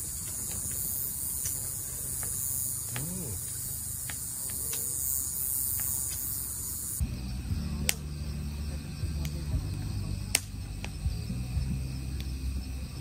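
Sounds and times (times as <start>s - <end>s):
crickets and insects chirping: 0.0s - 13.0s
faint clicks: 1.4s - 5.1s.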